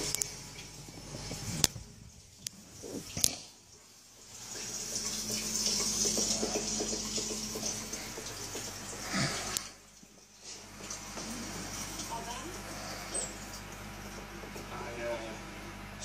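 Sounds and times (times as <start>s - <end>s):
aquarium air bubbles fizzing: 0.0s - 14.4s.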